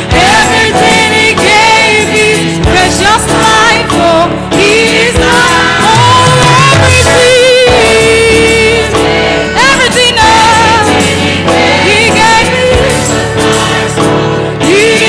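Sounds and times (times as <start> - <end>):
choir singing: 0.0 - 15.0
woman singing gospel: 0.0 - 15.0.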